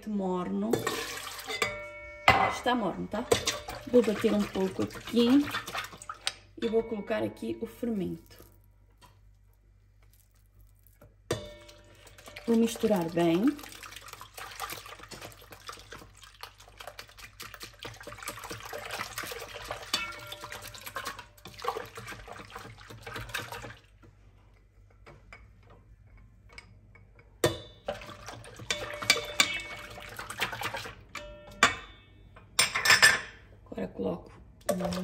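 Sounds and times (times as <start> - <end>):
whisk clinking on bowl: 0.7 - 6.0, 14.4 - 23.4, 27.4 - 31.9
whisk beating liquid in steel bowl: 3.2 - 6.2, 12.0 - 23.8, 27.9 - 31.0.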